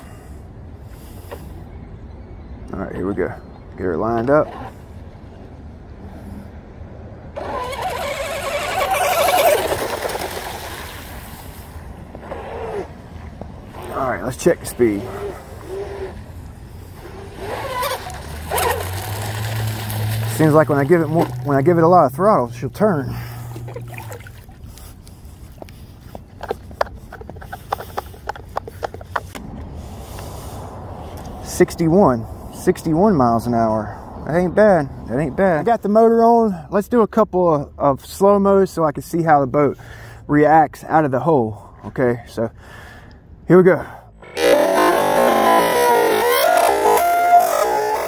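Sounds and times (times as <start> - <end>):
electric motor high whine: 44.2 - 48.0.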